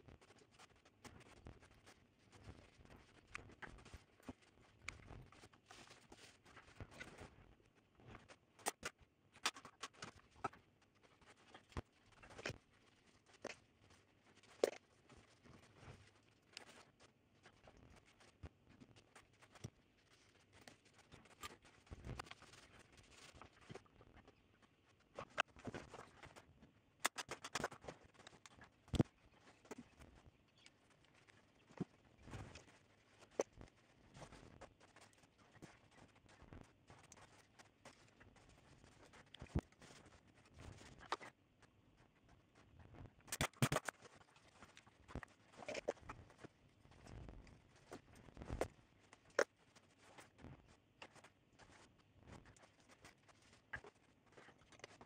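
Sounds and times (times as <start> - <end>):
small tools clicking and tapping: 43.3 - 44.0.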